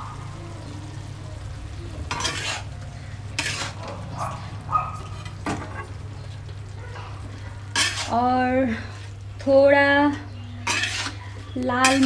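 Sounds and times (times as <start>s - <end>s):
vegetables sizzling in frying: 0.0s - 12.0s
metal spatula scraping a pan: 2.1s - 4.0s, 7.7s - 8.4s, 10.6s - 12.0s.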